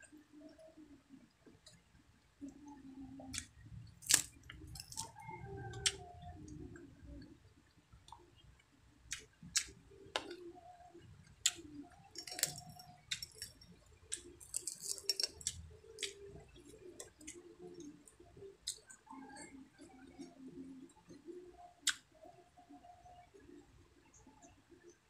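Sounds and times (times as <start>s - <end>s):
crispy fish crackling and crunching: 3.3s - 6.0s, 11.3s - 19.9s.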